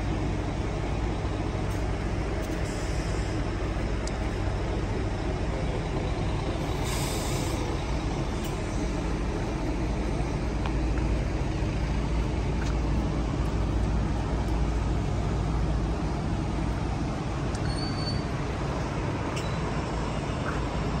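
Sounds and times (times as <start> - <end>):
high squeak: 17.6 - 18.3.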